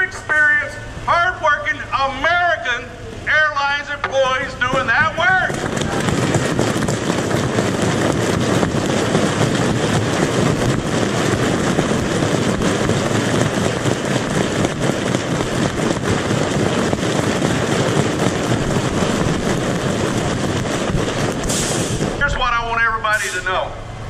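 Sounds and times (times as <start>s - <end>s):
crowd applauding: 5.3s - 21.6s.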